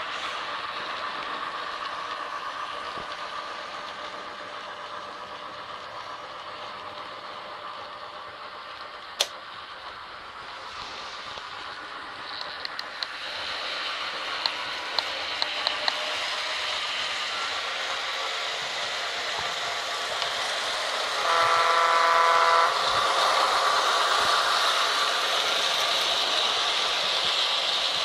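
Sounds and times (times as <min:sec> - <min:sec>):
model train running hiss: 0:00.0 - 0:28.0
diesel horn: 0:21.2 - 0:22.8.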